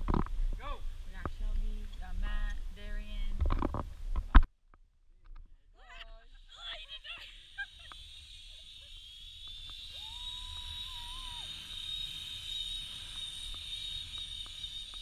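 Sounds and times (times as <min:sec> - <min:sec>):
zipline pulleys whining on cable: 0:05.9 - 0:15.0.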